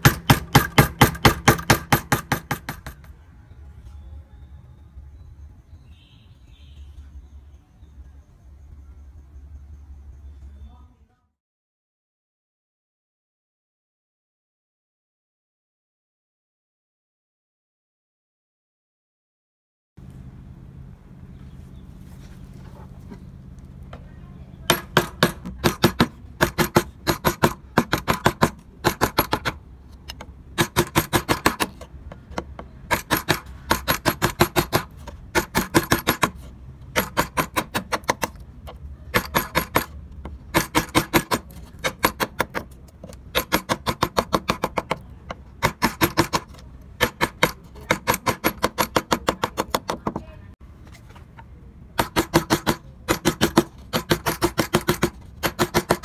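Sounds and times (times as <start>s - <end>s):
mallet tapping on chisel: 24.7s - 36.4s, 39.2s - 50.2s.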